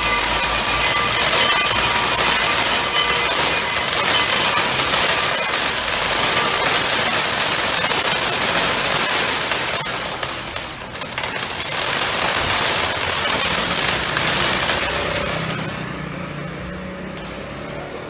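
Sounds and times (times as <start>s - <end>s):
fireworks fizzing crackle: 0.0s - 17.9s.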